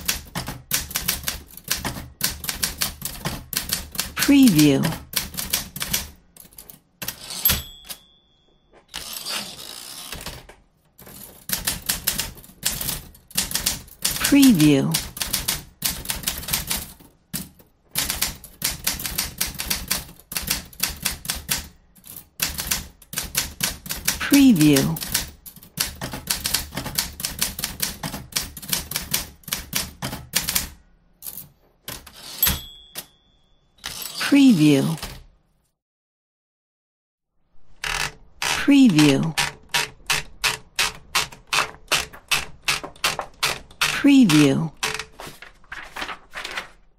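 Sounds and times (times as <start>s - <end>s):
typewriter carriage rasping: 0.0s - 8.0s, 8.9s - 30.7s, 31.9s - 33.1s, 33.8s - 35.3s, 37.8s - 46.8s
typewriter keys clacking: 0.0s - 8.0s, 9.0s - 33.1s, 37.8s - 46.8s
typewriter bell ring: 7.1s - 9.5s, 32.1s - 34.2s.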